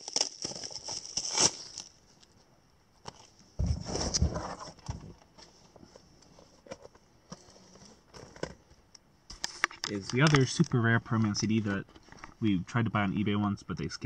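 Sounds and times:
cardboard packaging rustling: 0.0 - 2.4.

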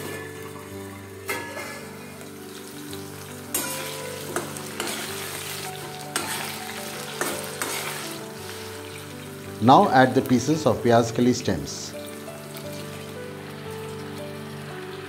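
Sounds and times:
metal spatula scraping wok: 0.0 - 2.6, 3.4 - 9.2
food sizzling in hot oil: 0.0 - 15.0.

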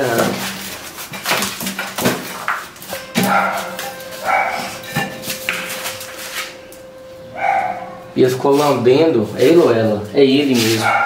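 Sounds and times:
dog barking: 3.2 - 4.9, 7.4 - 8.1, 10.8 - 11.0.

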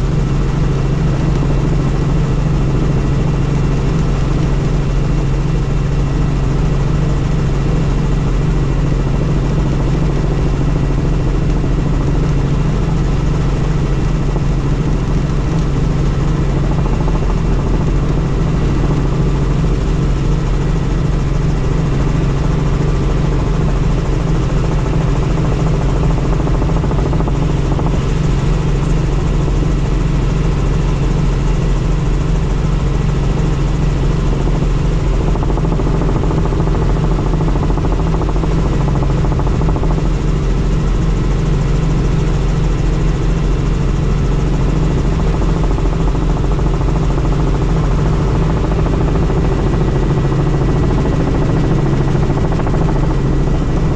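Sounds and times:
helicopter engine and rotor noise: 0.0 - 53.9.

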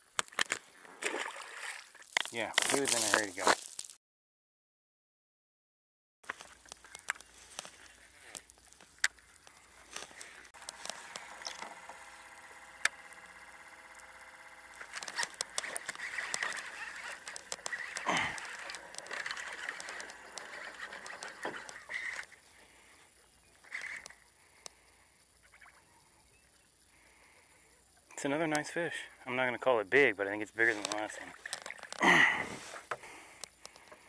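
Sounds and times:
scattered clicks: 6.3 - 22.3, 23.6 - 24.9, 30.6 - 32.0, 32.9 - 34.0
fishing reel whirring: 6.4 - 26.2.

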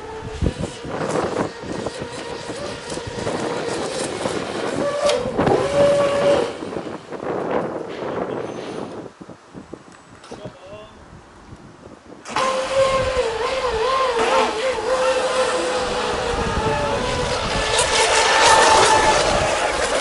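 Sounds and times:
model boat motor whine: 0.0 - 7.8, 12.2 - 20.0.

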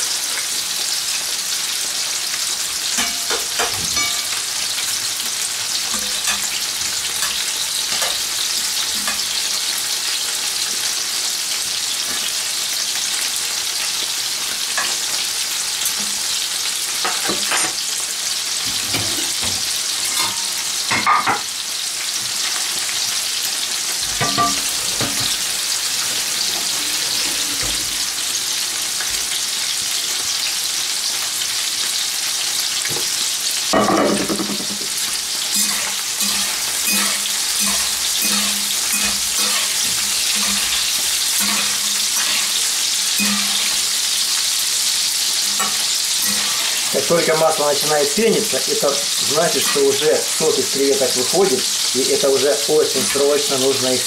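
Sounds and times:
prawns sizzling in oil: 0.0 - 54.0
utensils scraping a pan: 24.0 - 28.6, 34.2 - 44.6, 45.3 - 51.8.

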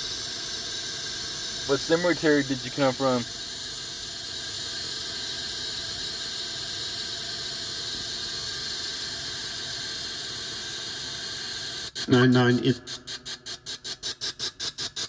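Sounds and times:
white noise static: 1.7 - 3.3.

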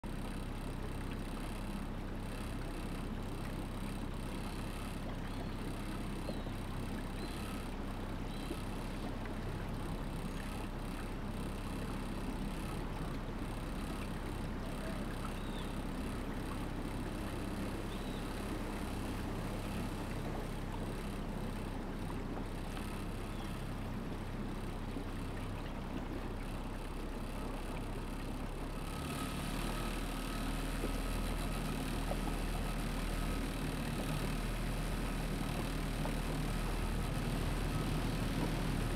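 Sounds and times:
boat motor running: 0.0 - 38.9
water noise: 0.0 - 38.9.

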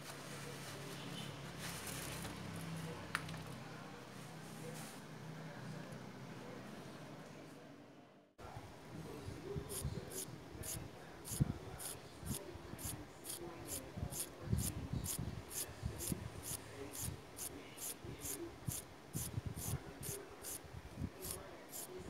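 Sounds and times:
pencil scratching on paper: 9.7 - 20.6, 21.2 - 21.9.

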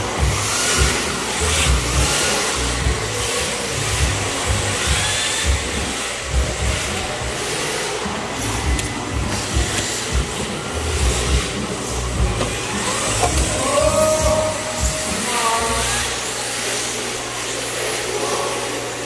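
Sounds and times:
toy cars tyres hissing: 0.0 - 18.8
small motors high whine: 0.0 - 19.0.

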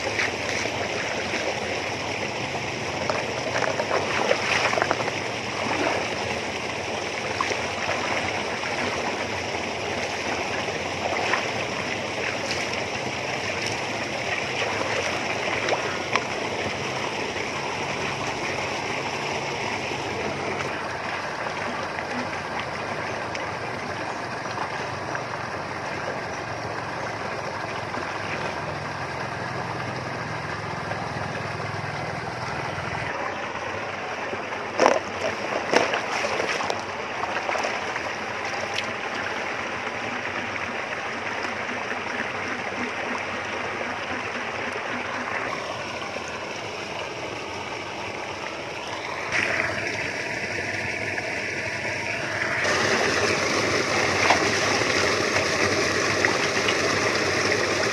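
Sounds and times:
flowing water: 0.0 - 57.9
sharp knocks or splashes: 3.0 - 6.1, 34.8 - 37.9.

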